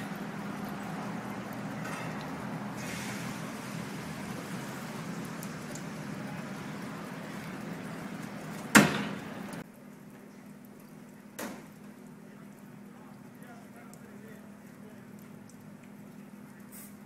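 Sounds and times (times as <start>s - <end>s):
machinery hum: 0.0s - 9.6s.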